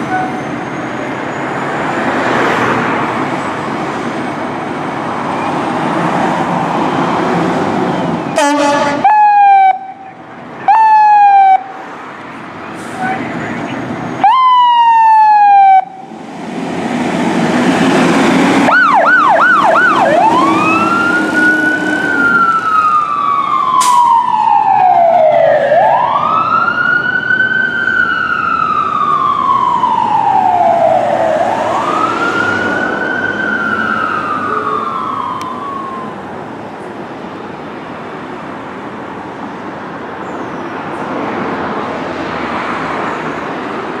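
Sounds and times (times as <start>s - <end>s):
traffic noise: 0.0s - 44.0s
fire engine siren wailing: 7.9s - 12.1s, 12.7s - 36.6s.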